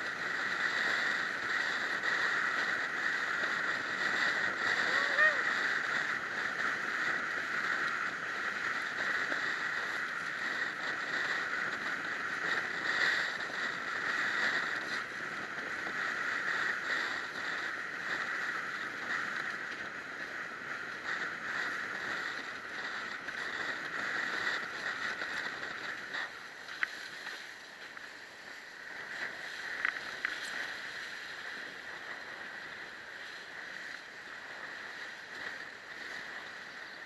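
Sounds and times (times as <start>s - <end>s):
water rushing: 4.3s - 5.8s.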